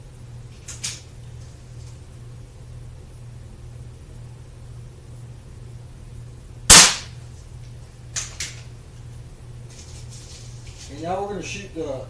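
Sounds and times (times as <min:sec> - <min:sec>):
air pistol firing: 0:06.7 - 0:07.2.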